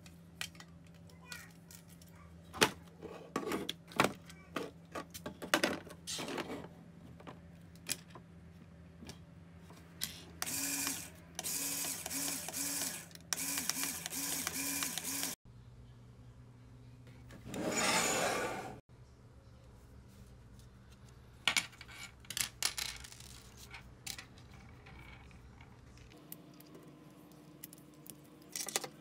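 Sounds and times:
small electric motor pulsing: 10.4s - 15.4s.

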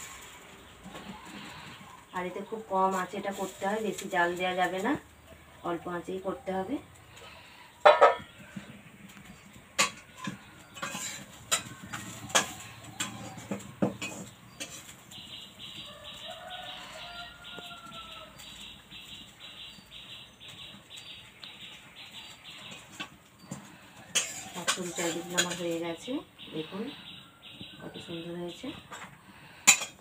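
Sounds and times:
cooking utensils clicking: 9.7s - 15.0s, 29.7s - 30.0s.

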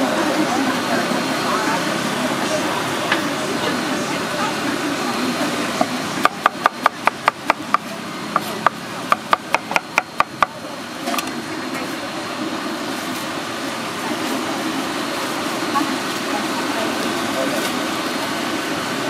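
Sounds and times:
cleaver chopping on wooden board: 5.8s - 10.6s.

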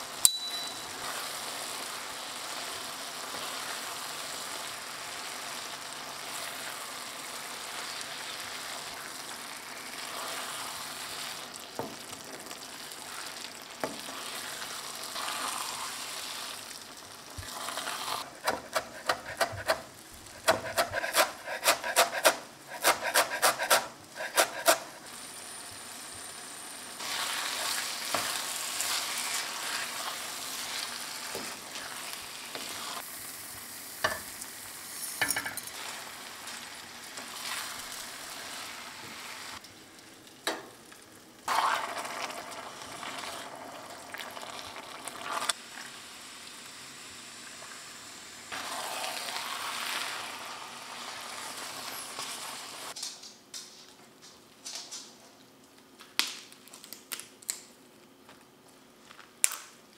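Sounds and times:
vegetables sizzling in a frying pan: 0.0s - 20.7s, 23.8s - 53.0s
knife chopping on cutting board: 18.4s - 19.8s, 20.4s - 24.8s.

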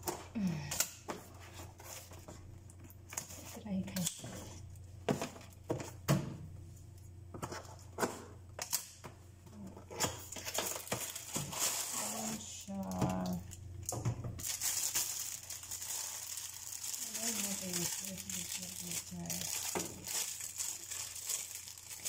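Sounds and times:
plastic bag crinkling: 10.0s - 22.0s.

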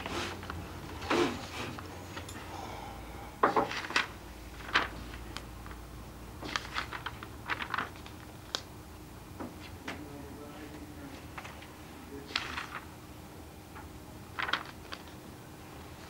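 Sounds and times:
papers and objects clicking: 3.6s - 5.8s, 6.4s - 8.7s, 14.4s - 15.2s.

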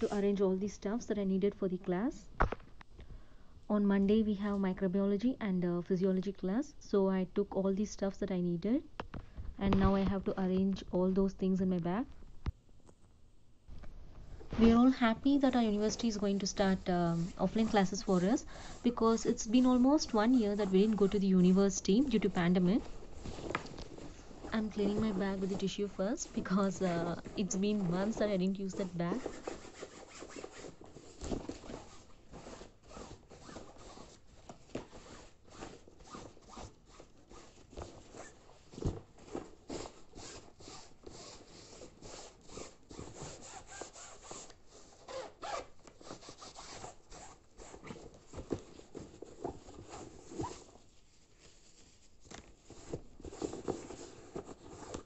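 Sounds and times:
fabric rustling and rubbing: 0.0s - 0.8s, 14.0s - 55.0s.

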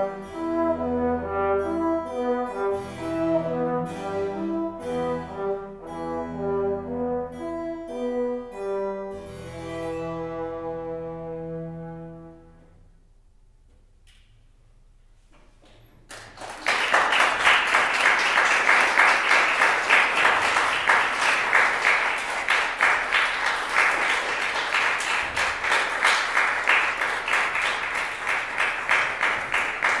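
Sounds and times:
audience applause: 16.1s - 30.0s.

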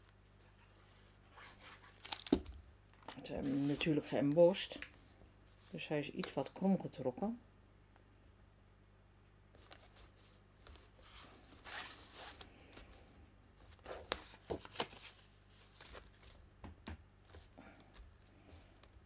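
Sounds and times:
cardstock rustling and sliding: 3.4s - 4.2s.

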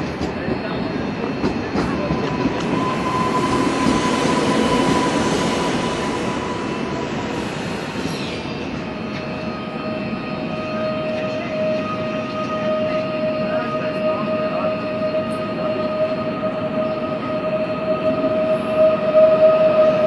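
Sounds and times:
train wheel rolling noise: 0.0s - 9.5s.

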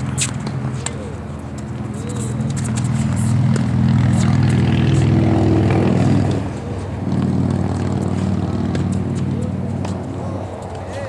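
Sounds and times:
low engine drone: 0.0s - 11.0s.

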